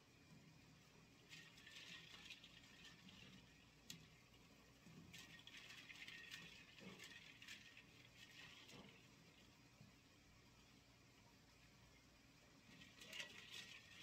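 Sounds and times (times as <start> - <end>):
ice water swishing in a bowl: 1.2 - 9.6, 12.6 - 14.0.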